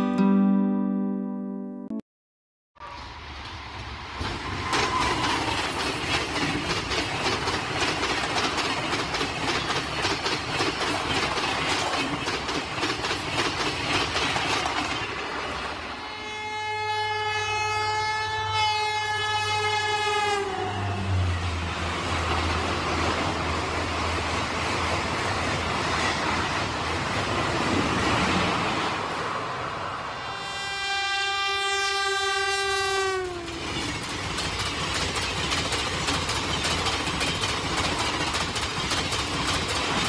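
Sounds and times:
low rumble of passing train: 2.8 - 40.0
train coaches clattering over rail joints: 4.2 - 15.7, 33.4 - 40.0
train horn: 16.0 - 21.6, 30.1 - 33.7.

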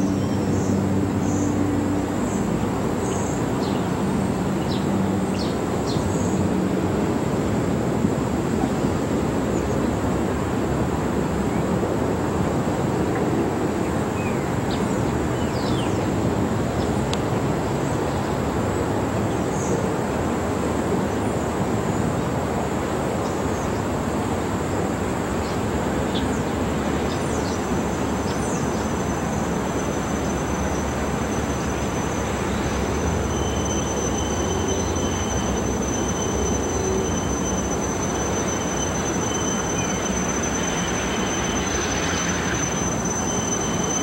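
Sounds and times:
train wheels rumbling on rail: 0.0 - 44.0
high wheel squeal: 13.6 - 44.0
lower wheel squeal: 13.9 - 44.0.

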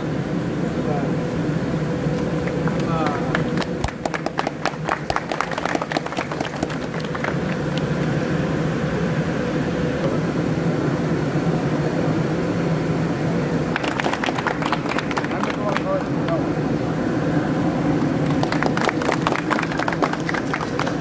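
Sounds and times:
factory machinery drone: 0.0 - 21.0
hand claps: 2.1 - 8.1, 13.7 - 16.4, 18.0 - 21.0.

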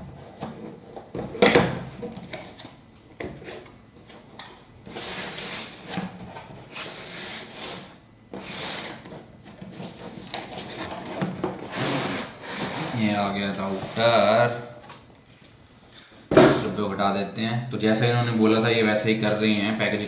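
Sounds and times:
cardboard rubbing and scraping: 4.9 - 6.0, 6.6 - 14.4.

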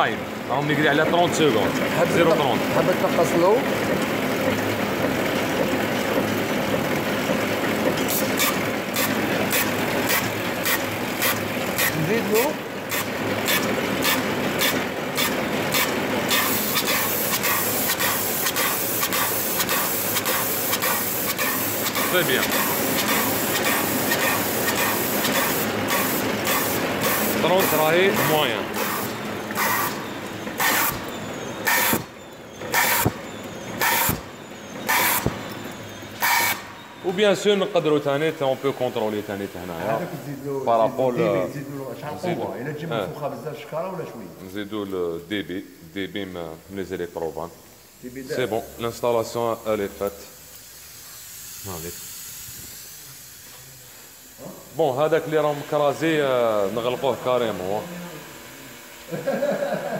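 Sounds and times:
packaging machine humming: 0.0 - 42.6, 50.6 - 59.9
sharp mechanical clicks: 8.0 - 33.2, 33.8 - 35.5
pneumatic hiss: 8.0 - 37.1, 47.3 - 59.9.

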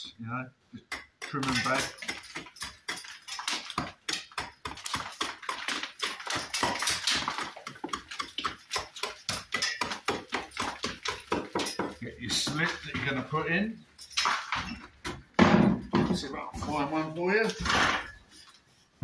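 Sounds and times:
hammer chipping brick: 0.9 - 13.2.

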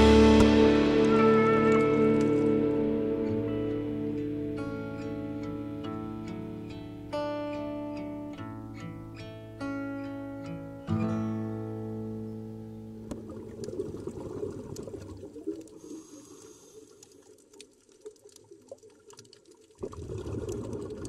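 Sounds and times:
acoustic guitar chord: 0.0 - 13.4
water noise with clicks: 13.0 - 21.0.

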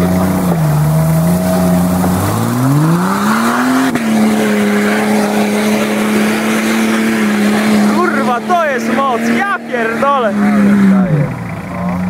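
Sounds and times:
car engine revving hard: 0.0 - 12.0.

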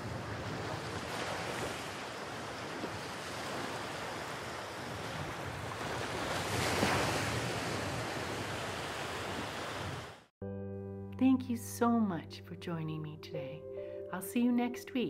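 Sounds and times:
waves breaking on sandy shore: 0.0 - 10.3.

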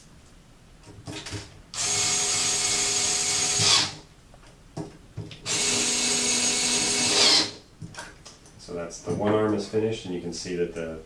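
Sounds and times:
electric screwdriver motor whine: 1.8 - 4.0, 5.5 - 7.6.

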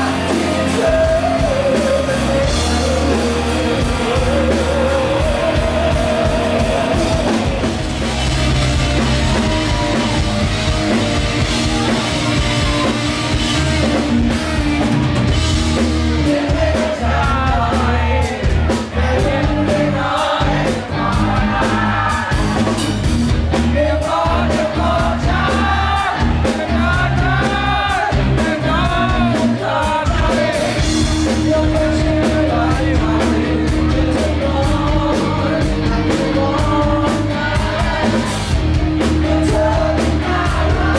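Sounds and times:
man singing: 0.0 - 8.0, 16.0 - 22.5, 23.5 - 40.9
drum kit: 0.0 - 40.9
electric guitars: 0.0 - 40.9.

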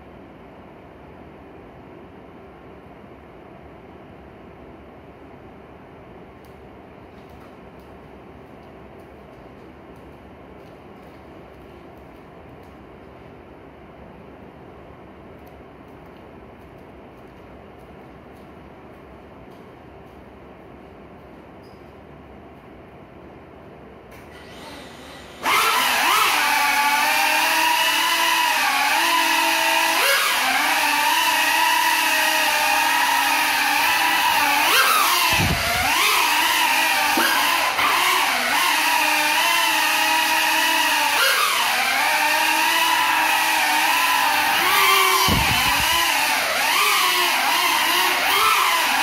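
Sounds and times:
quadcopter motors whining: 24.2 - 49.0.

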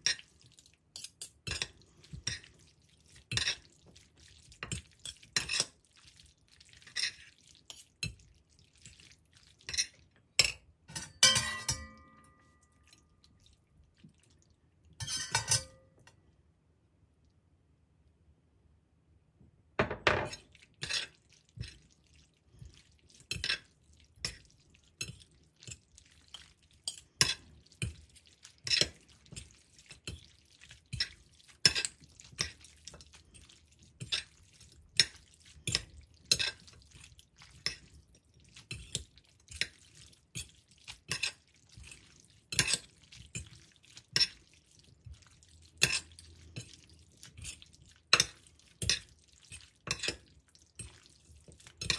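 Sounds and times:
cutlery clinking on ceramic plate: 9.7 - 13.0, 15.0 - 15.9, 19.8 - 21.1.

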